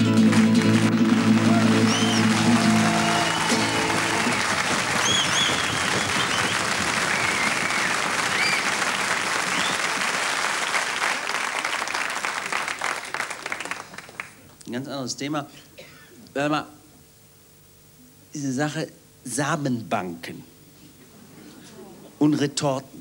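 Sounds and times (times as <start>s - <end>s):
audience applauding: 0.0s - 14.5s.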